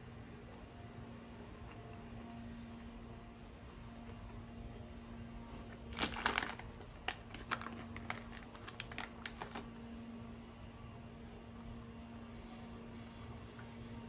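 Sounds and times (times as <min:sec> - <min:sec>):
plastic snack bag crinkling: 0:05.6 - 0:09.7.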